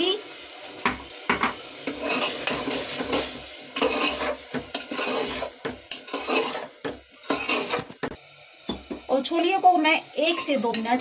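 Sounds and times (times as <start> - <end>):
masala sizzling: 0.0 - 11.0
steel spoon scraping a pot: 1.8 - 8.0, 10.2 - 11.0.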